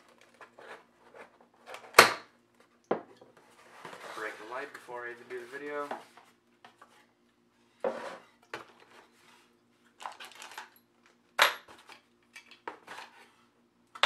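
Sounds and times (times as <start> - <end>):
cardboard and plastic rustling: 3.4 - 10.7.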